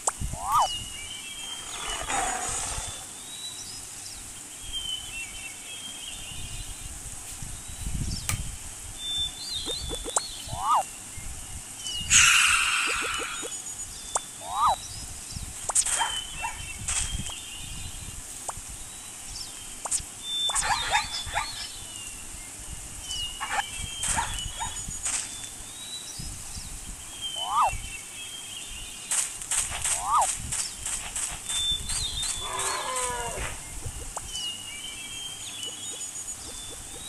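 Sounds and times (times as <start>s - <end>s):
short animal calls and chirps: 0.2s - 0.8s, 9.6s - 10.9s, 12.0s - 14.8s, 19.8s - 21.8s, 27.3s - 27.9s, 29.8s - 30.3s, 31.8s - 34.4s.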